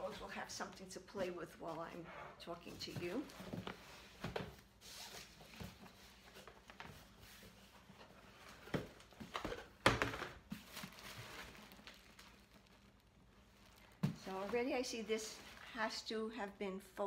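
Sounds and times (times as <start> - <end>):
tissue paper rustling: 10.5 - 16.1.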